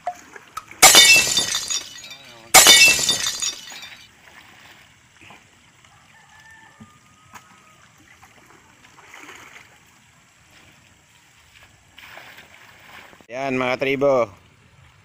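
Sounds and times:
water trickling and splashing: 0:00.0 - 0:13.3.

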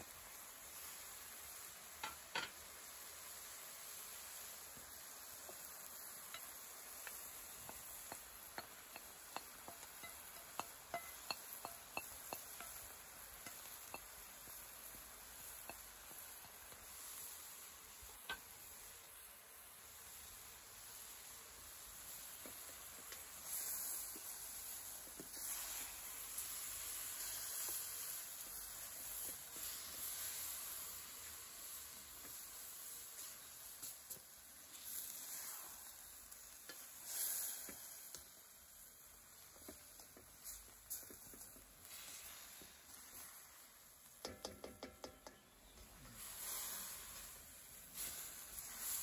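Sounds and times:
chicken sizzling in oil: 0:00.0 - 0:49.0
spoon scraping pan: 0:05.3 - 0:17.3.

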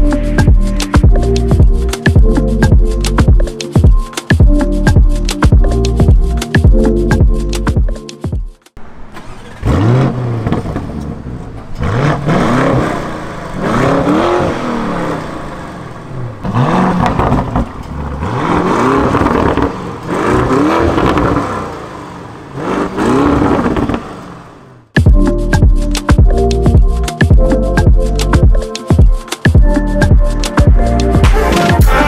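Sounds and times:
car engine revving: 0:08.8 - 0:25.0.

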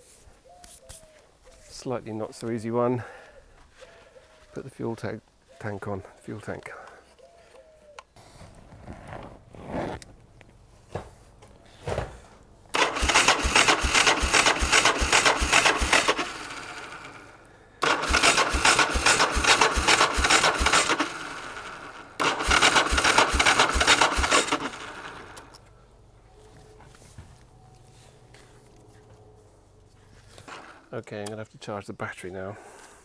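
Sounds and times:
engine cranking on starter: 0:12.7 - 0:25.6.

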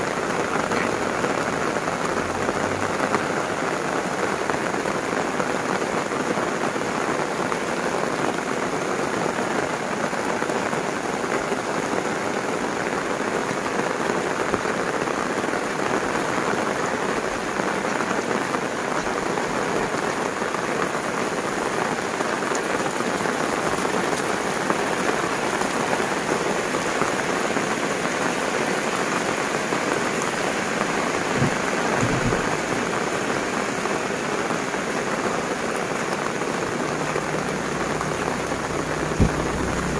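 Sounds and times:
heavy rain: 0:00.0 - 0:39.9
low thump: 0:31.3 - 0:32.7, 0:39.2 - 0:39.9.

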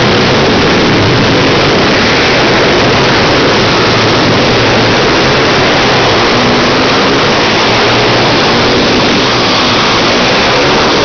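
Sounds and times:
pit bike engines revving: 0:00.0 - 0:11.0.

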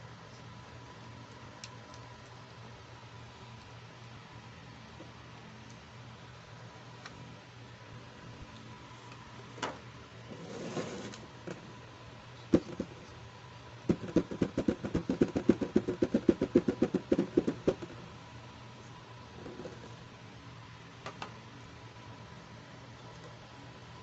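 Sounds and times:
fingers tapping on plastic box: 0:12.5 - 0:12.9, 0:13.9 - 0:18.0.

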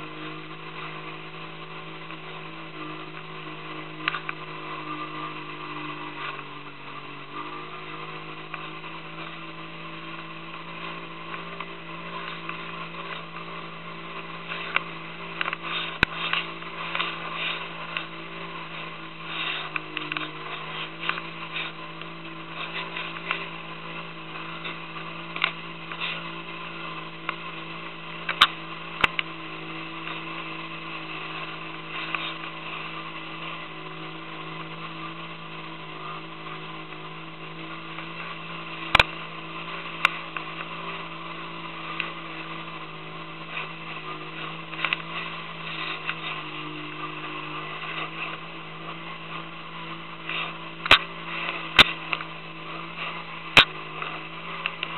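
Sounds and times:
boat engine droning: 0:00.0 - 0:54.9
water splashing along hull: 0:00.0 - 0:54.9.

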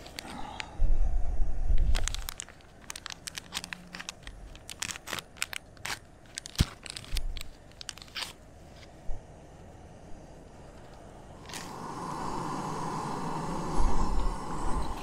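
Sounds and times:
sachet tearing and crinkling: 0:00.0 - 0:00.4, 0:01.8 - 0:08.4
low rumble: 0:00.2 - 0:02.4.

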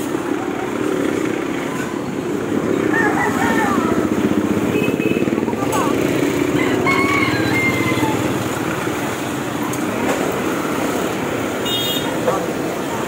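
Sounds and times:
street traffic: 0:00.0 - 0:13.0.

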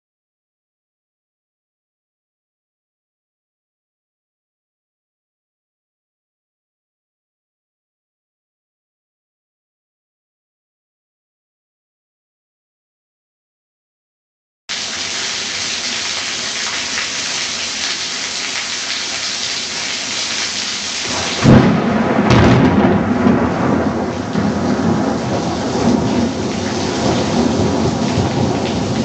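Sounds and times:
heavy rain hissing: 0:14.7 - 0:21.8, 0:23.3 - 0:29.0
rumbling thunder: 0:21.1 - 0:29.0
thunderclap: 0:21.1 - 0:29.0.

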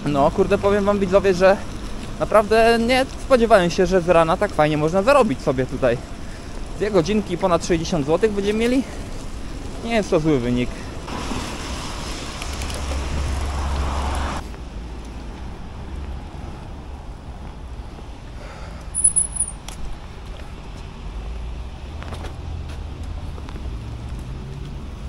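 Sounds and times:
low traffic rumble: 0:00.0 - 0:25.0
traffic rush: 0:00.0 - 0:25.0.

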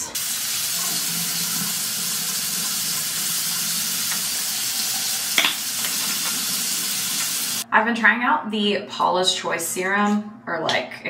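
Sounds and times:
faucet water running into basin: 0:00.0 - 0:07.6.

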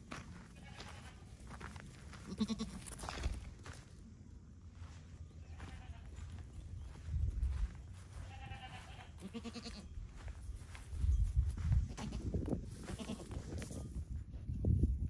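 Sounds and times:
goat kids bleating: 0:00.5 - 0:01.4, 0:02.2 - 0:03.0, 0:05.4 - 0:06.4, 0:08.0 - 0:10.0, 0:11.8 - 0:13.4.

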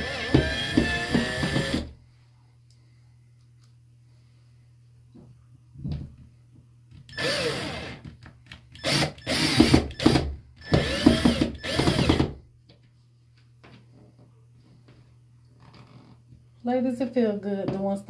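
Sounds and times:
cordless drill driving screws: 0:00.0 - 0:01.9, 0:07.1 - 0:08.0, 0:08.8 - 0:12.3.

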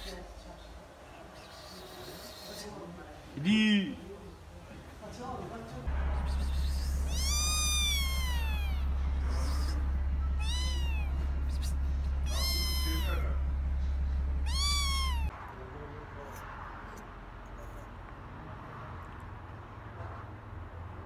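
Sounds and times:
steady low hum: 0:05.9 - 0:15.3
kitten meowing: 0:06.4 - 0:09.8, 0:10.4 - 0:13.4, 0:14.4 - 0:15.3.

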